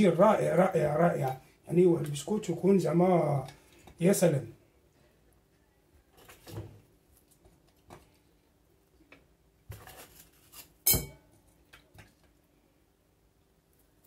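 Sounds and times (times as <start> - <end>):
sharp glass clink: 10.8 - 11.2.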